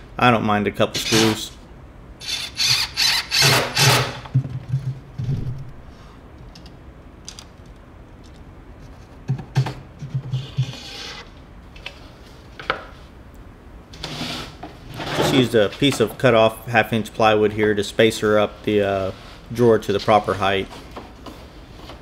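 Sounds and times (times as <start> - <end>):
cordless drill driving screws: 2.2 - 4.2
drill click: 2.2 - 4.3.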